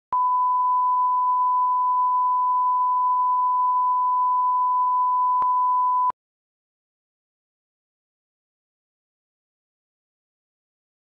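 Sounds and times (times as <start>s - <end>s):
steady test tone beep: 0.1s - 6.2s.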